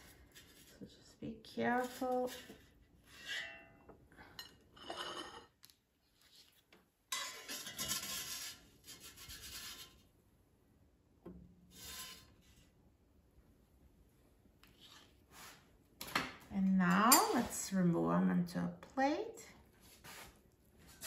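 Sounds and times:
spatula scraping metal basket: 1.5s - 3.7s, 7.1s - 10.0s, 11.7s - 12.6s.

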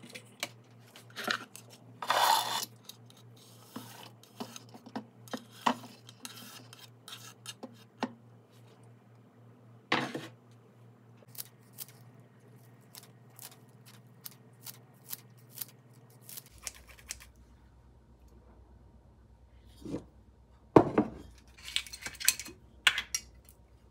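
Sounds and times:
scraping on wooden cutting board: 2.0s - 2.7s.

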